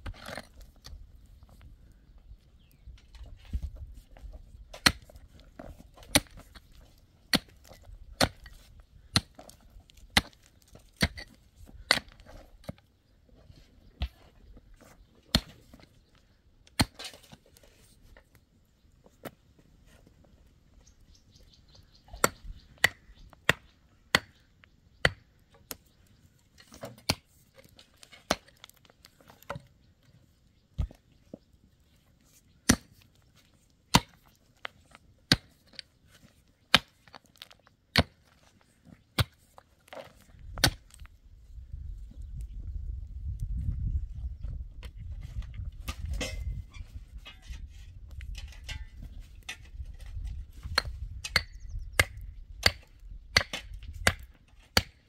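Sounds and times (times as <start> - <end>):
hoe blade striking stony soil: 4.7 - 5.2, 6.0 - 6.6, 7.3 - 9.5, 10.1 - 12.8, 15.3 - 15.9, 16.7 - 17.4, 22.1 - 24.4, 32.6 - 33.0, 33.9 - 34.3, 35.3 - 35.8, 36.7 - 37.2, 37.9 - 38.3, 40.6 - 41.0, 48.3 - 55.0.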